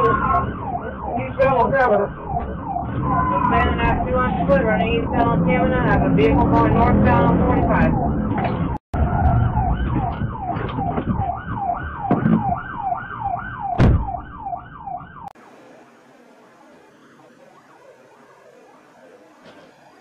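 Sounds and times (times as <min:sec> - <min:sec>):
car engine and road noise: 0:00.0 - 0:20.0
police siren yelping: 0:00.0 - 0:20.0
sharp thump: 0:13.8 - 0:14.2.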